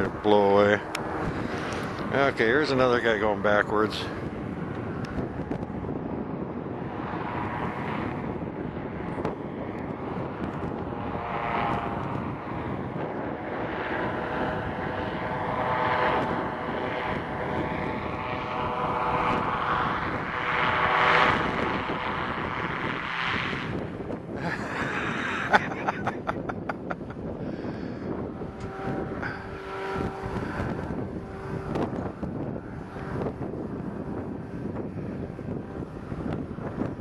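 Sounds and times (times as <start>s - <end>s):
engine and propeller droning: 0.0s - 37.0s
wind rumble: 0.0s - 37.0s.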